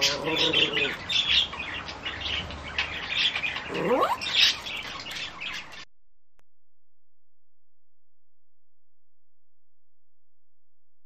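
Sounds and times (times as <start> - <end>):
small birds chirping: 0.0 - 5.9.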